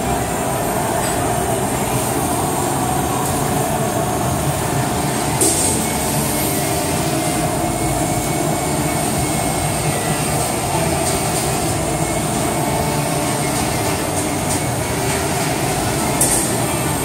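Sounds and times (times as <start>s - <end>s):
punch press mechanical drone: 0.0s - 17.0s.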